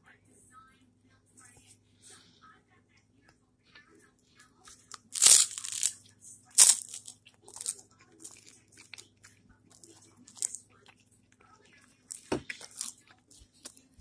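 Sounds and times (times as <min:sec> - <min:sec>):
crunching bites of rice cake: 0:04.8 - 0:06.0, 0:06.6 - 0:11.0, 0:12.1 - 0:13.8.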